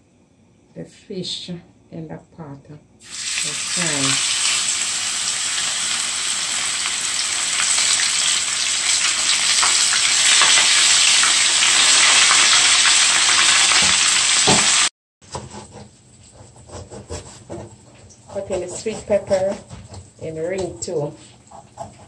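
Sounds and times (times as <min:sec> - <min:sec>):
fish sizzling in hot oil: 0:03.0 - 0:14.9.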